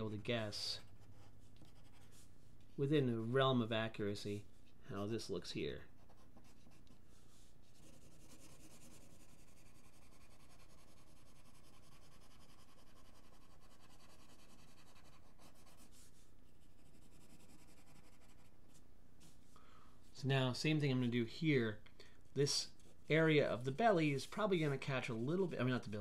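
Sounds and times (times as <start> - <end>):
pencil scratching on paper: 0.7 - 2.3, 6.0 - 18.8.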